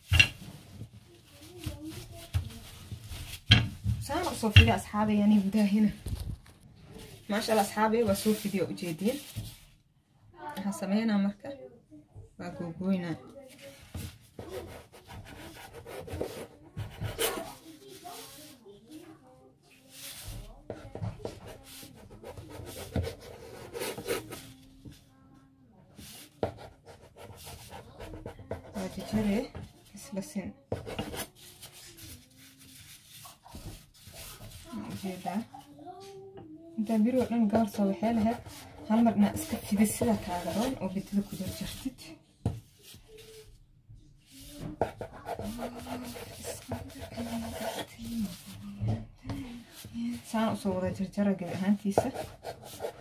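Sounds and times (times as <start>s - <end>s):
knife scraping dough: 13.9s - 18.6s, 36.8s - 42.1s, 44.4s - 48.6s, 49.8s - 53.0s
knife scraping along countertop: 44.4s - 48.6s, 51.4s - 53.0s.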